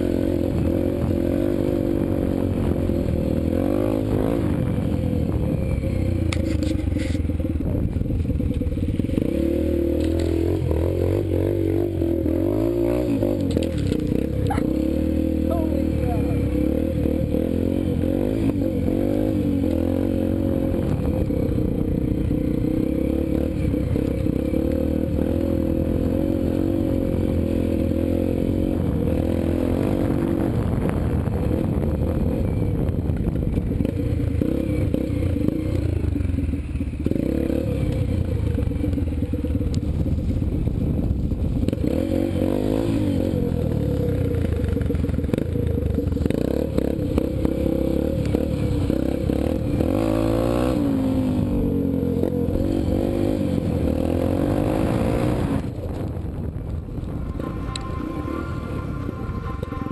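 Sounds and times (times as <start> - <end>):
dirt bike engine revving: 8.7 - 30.6, 41.7 - 59.9.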